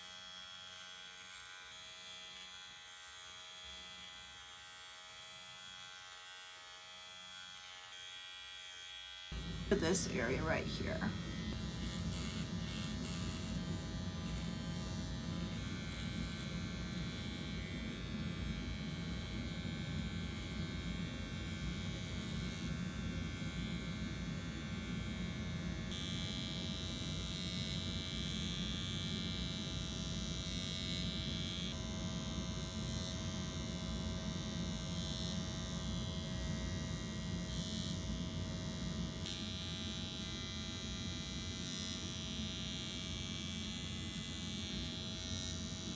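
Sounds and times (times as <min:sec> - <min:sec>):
microneedling pen buzzing: 0:00.0 - 0:45.9
high whine: 0:09.4 - 0:16.0.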